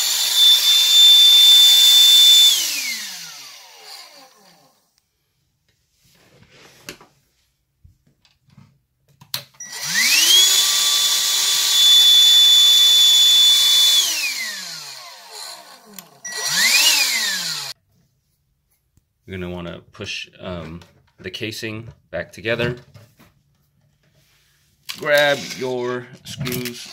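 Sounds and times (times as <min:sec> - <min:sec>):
hand vacuum motor whining: 0:00.0 - 0:04.8, 0:09.6 - 0:17.8, 0:24.9 - 0:26.9.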